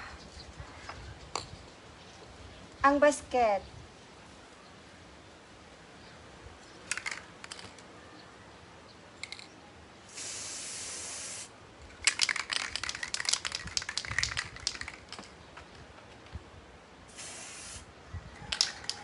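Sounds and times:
spray can ball rattling: 6.9 - 7.7, 12.0 - 15.4, 18.5 - 19.0
spray paint hissing: 10.1 - 11.5, 17.1 - 17.9.

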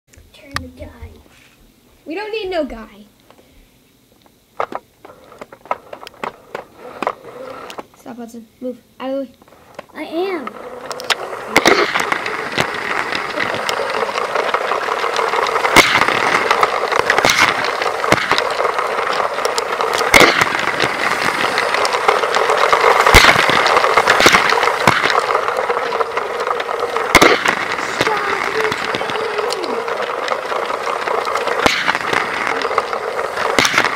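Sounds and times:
toy train motor running: 4.6 - 8.2, 9.0 - 33.9
sharp clicks: 9.3 - 33.9
wheels rattling: 9.8 - 33.9.

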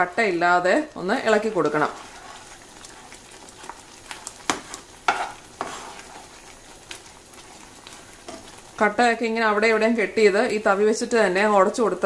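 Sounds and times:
soft sizzle: 0.0 - 12.0
spatula stirring thick semolina: 1.2 - 8.9.

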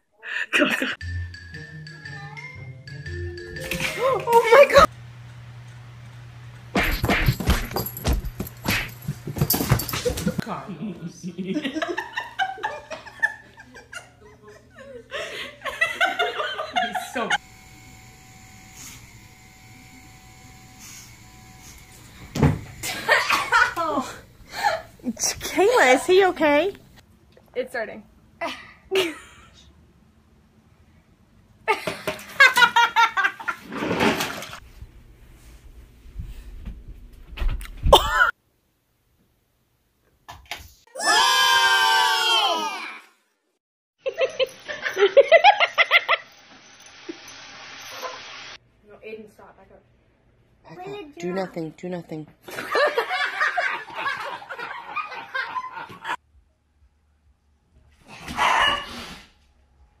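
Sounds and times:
person laughing: 0.2 - 1.0, 10.0 - 17.4, 22.8 - 24.9, 37.9 - 38.3
dog barking: 58.3 - 59.0.

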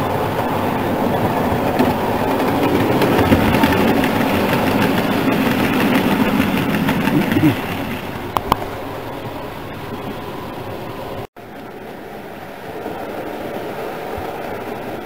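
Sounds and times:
model train wheels rumbling: 0.0 - 11.3.

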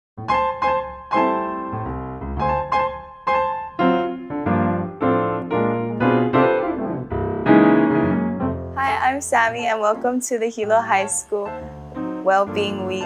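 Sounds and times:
piano chords: 0.2 - 13.0.

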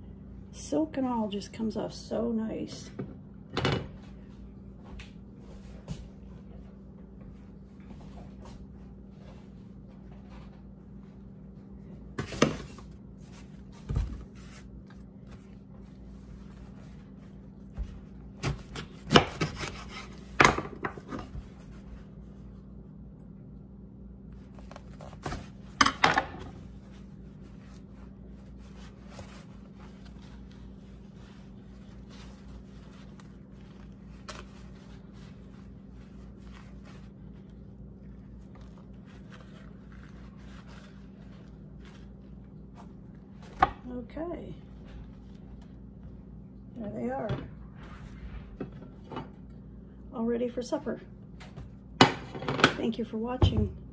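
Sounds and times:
steady low hum: 0.0 - 53.9
husk rustling: 26.6 - 43.6.

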